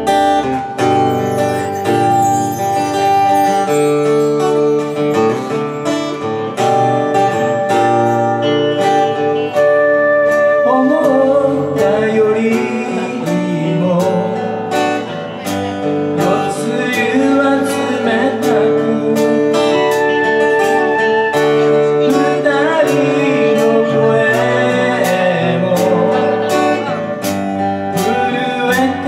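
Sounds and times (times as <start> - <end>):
live folk-rock band playing: 0.0 - 29.0
man singing: 10.5 - 29.0.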